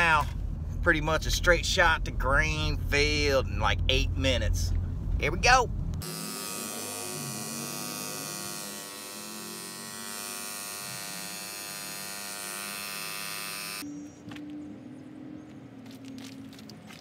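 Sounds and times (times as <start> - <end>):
tyre inflator motor buzz: 6.0 - 13.8.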